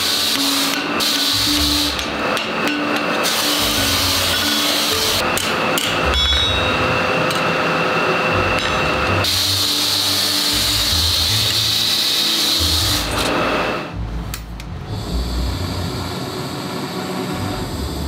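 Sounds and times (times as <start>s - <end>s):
workshop noise: 0.0s - 18.0s
hammer striking on anvil: 0.4s - 7.6s, 8.4s - 9.1s.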